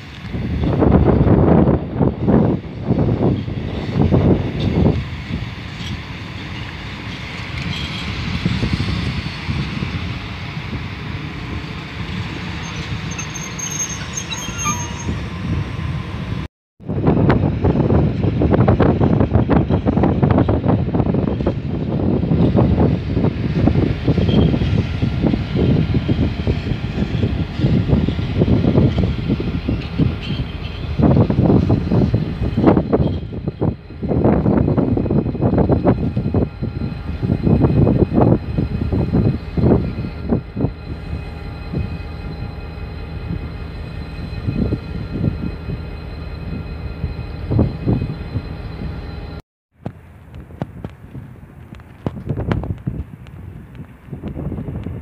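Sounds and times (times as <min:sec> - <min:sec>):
electric locomotive rumbling: 0:00.0 - 0:55.0.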